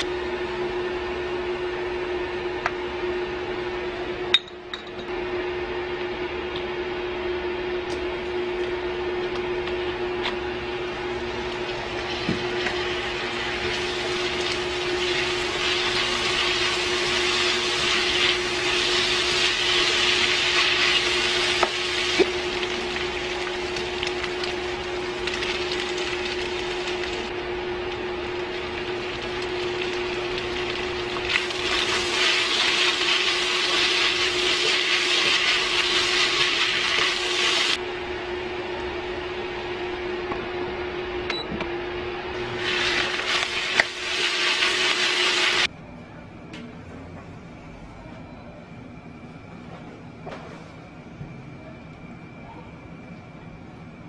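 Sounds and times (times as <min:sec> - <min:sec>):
cooktop hum: 0:00.0 - 0:54.0
food sizzling in a pan: 0:11.6 - 0:27.3, 0:28.6 - 0:37.8, 0:42.4 - 0:45.7.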